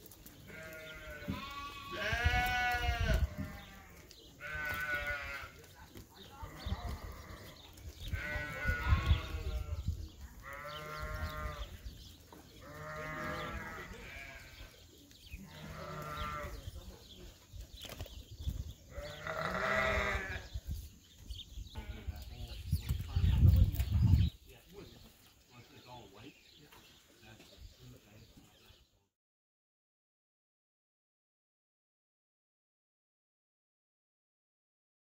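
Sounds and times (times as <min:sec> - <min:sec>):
lambs bleating: 0:00.5 - 0:05.6, 0:06.4 - 0:11.8, 0:12.6 - 0:14.7, 0:15.4 - 0:16.6, 0:18.9 - 0:20.5.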